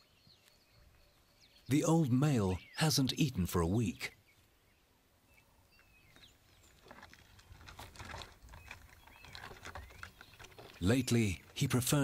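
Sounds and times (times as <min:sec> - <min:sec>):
soft bird chirps: 0:00.0 - 0:07.6, 0:08.4 - 0:12.0
lion scraping on tree trunk: 0:06.2 - 0:11.7.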